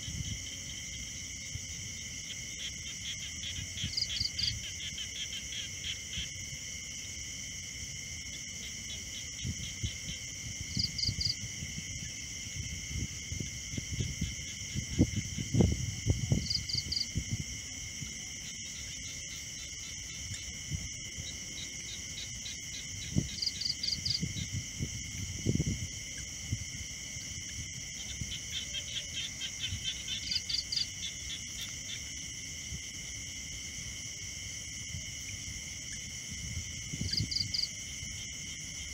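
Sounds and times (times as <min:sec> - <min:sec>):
crickets and insects chorus: 0:00.0 - 0:38.9.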